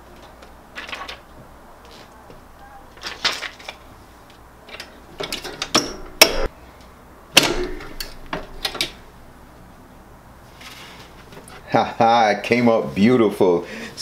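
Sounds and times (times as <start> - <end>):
heat press clicks and knocks: 5.2 - 6.5, 7.4 - 9.0
heat press sharp clunks: 5.6 - 6.5, 7.3 - 9.0.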